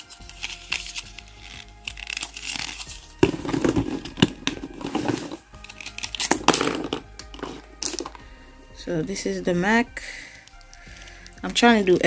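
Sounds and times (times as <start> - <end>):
packaging rustling and clicking: 0.0 - 8.2
soft background music: 0.0 - 12.0.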